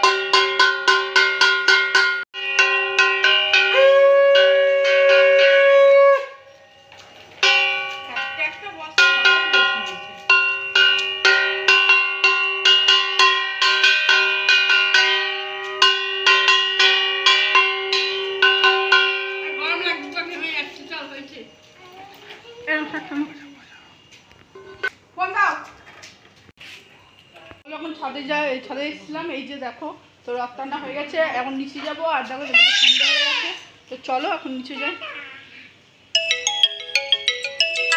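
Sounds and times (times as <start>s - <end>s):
conch shell blown: 2.9s - 7.1s, 17.9s - 20.4s
hand bell ringing rapidly: 7.4s - 21.1s, 36.2s - 37.9s.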